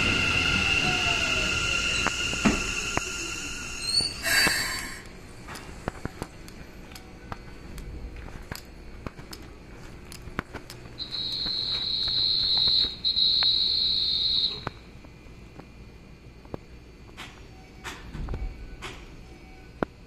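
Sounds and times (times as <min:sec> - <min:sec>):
loud high-pitched tone: 0:11.0 - 0:14.7.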